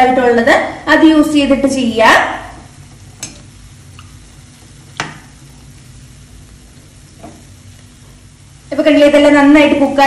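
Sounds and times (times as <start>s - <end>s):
fritters sizzling in oil: 1.4s - 10.0s
metal utensil tapping pan: 3.2s - 4.1s.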